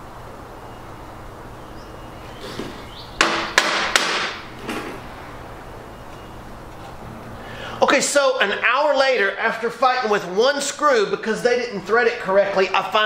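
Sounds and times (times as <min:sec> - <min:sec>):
screwdriver knocking on metal: 0:03.2 - 0:04.4.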